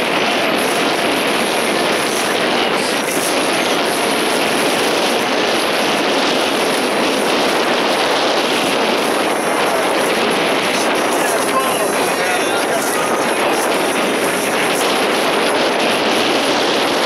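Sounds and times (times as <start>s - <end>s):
boat engine drone: 0.0s - 17.0s
water rushing: 0.0s - 17.0s
wind: 0.0s - 17.0s.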